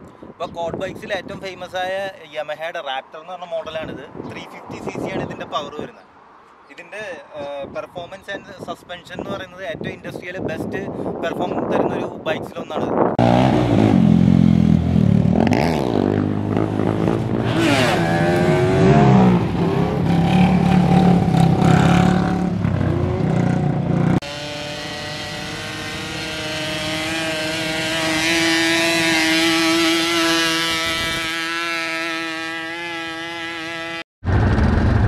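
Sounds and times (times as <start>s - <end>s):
quad bike engines revving: 13.2s - 34.0s.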